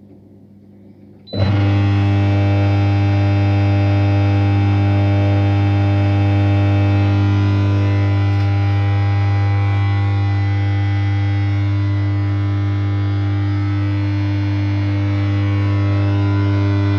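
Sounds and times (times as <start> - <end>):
pump electrical hum: 0.0 - 16.9.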